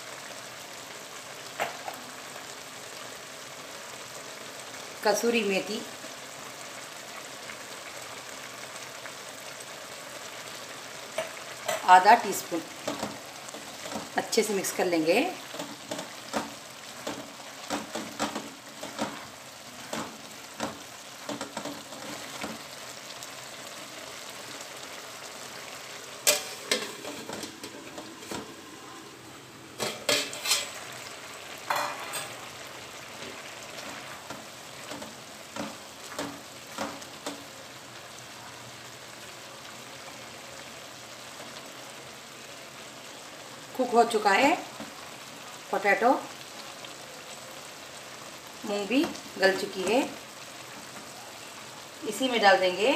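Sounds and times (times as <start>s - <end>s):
curry simmering with sizzle: 0.0s - 52.9s
metal lid clanking: 26.2s - 28.5s, 29.8s - 30.8s, 31.6s - 32.4s
wooden spatula scraping pot: 29.8s - 30.8s.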